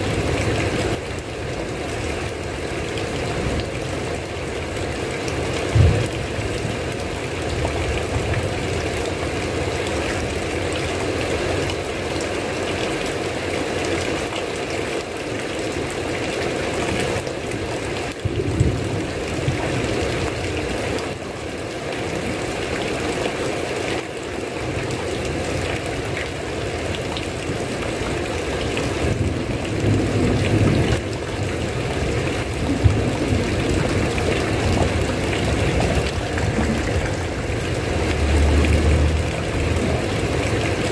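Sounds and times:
heavy rain falling: 0.0s - 40.9s
low rumbles: 32.7s - 40.8s.

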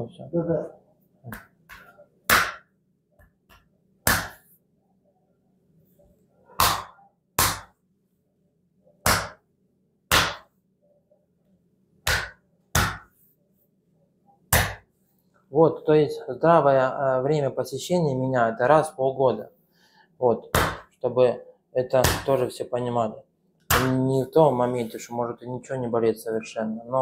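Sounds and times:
hand slaps on bare back: 1.3s - 4.5s, 6.6s - 7.7s, 9.0s - 9.4s, 10.1s - 10.5s, 12.0s - 13.1s, 14.5s - 14.8s.

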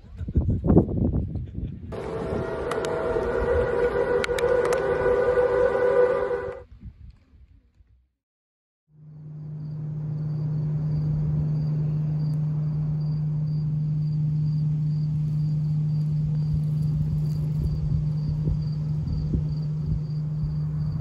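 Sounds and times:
steady low hum: 1.9s - 6.6s, 9.0s - 21.0s
low rumble: 1.9s - 7.0s, 9.0s - 21.0s
insects chirping: 9.0s - 21.0s.

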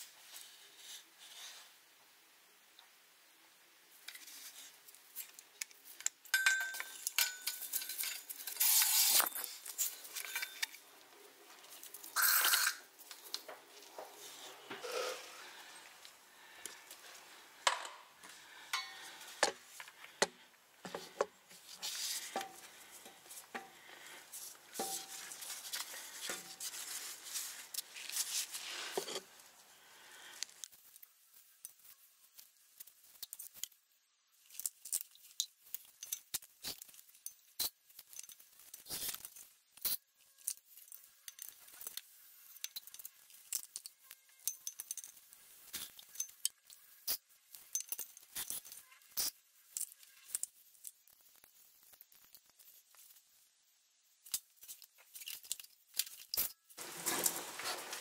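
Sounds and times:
rustling: 3.9s - 58.0s
small metallic clinks: 6.0s - 10.8s, 18.7s - 19.1s, 34.5s - 51.4s.

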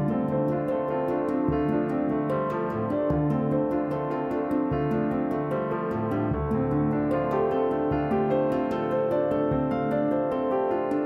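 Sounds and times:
ticking beat: 0.0s - 11.0s.

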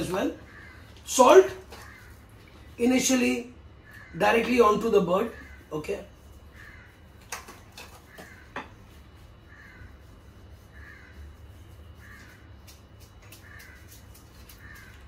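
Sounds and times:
low steady hum: 0.0s - 15.0s
crow cawing: 0.4s - 1.0s, 1.6s - 2.2s, 3.8s - 4.3s, 5.2s - 5.8s, 6.5s - 7.0s, 7.9s - 8.8s, 9.5s - 10.0s, 10.7s - 11.4s, 12.0s - 12.6s, 13.3s - 15.0s.

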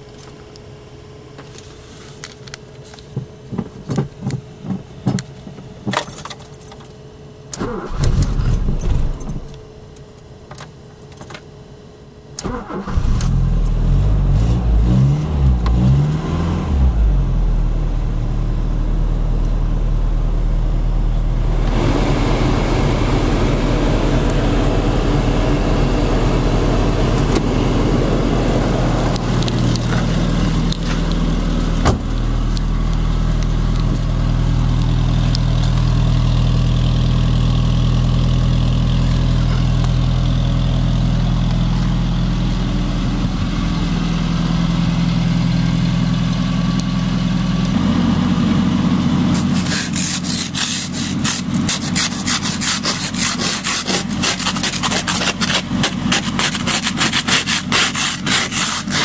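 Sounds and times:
car engine idling: 13.0s - 57.2s
car door thump: 31.8s - 32.2s.

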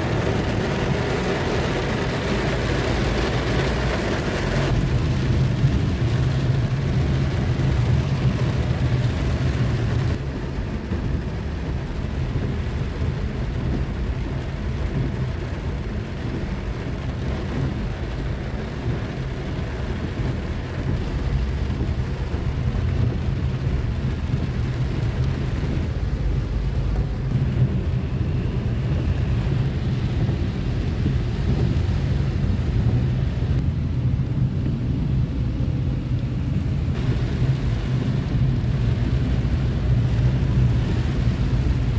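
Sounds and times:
car engine and tyre noise: 0.0s - 41.9s
rain and spray hiss: 0.0s - 41.9s.

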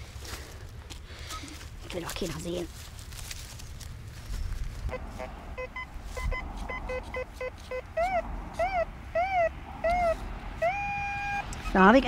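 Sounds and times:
metal detector beeps: 4.9s - 11.8s.

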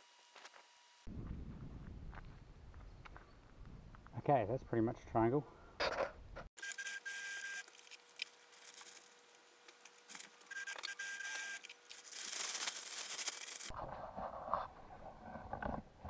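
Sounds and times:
stiff tarp rustling: 11.9s - 13.8s.

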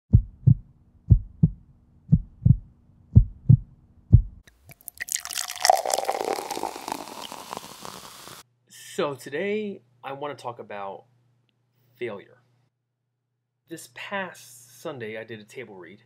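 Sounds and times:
heartbeat thumps: 0.1s - 4.4s.

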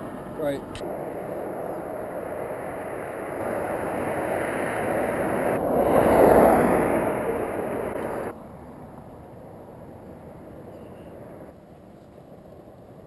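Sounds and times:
minivan driving past: 0.0s - 8.4s.

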